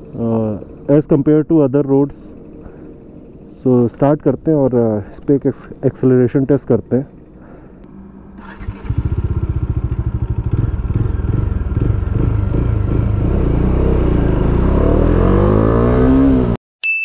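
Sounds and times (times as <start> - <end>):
motorcycle engine accelerating: 0.0 - 1.4, 7.2 - 16.6.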